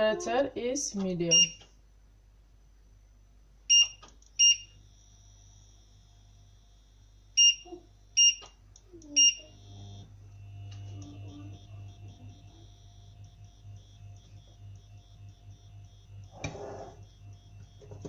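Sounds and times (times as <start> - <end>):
short high touch-control beeps: 3.7 - 4.8, 7.4 - 8.5, 9.1 - 9.6, 10.5 - 18.0
low hum: 4.2 - 18.0.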